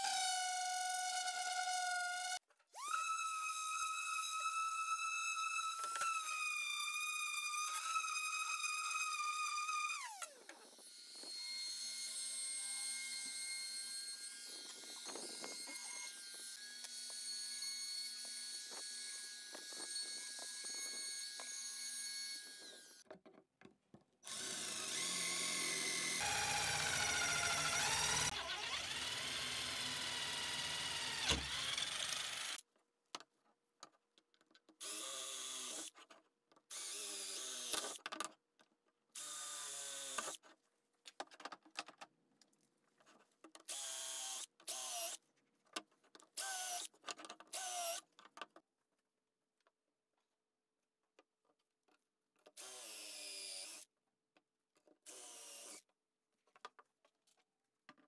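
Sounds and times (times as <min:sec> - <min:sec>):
electric drill boring wood: 0:00.0 - 0:23.0, 0:24.2 - 0:32.6, 0:34.8 - 0:35.9, 0:36.7 - 0:38.0, 0:39.2 - 0:40.4, 0:43.7 - 0:45.2, 0:46.4 - 0:46.9, 0:47.5 - 0:48.0, 0:52.6 - 0:53.8, 0:55.1 - 0:55.8
wood router running: 0:24.3 - 0:32.6.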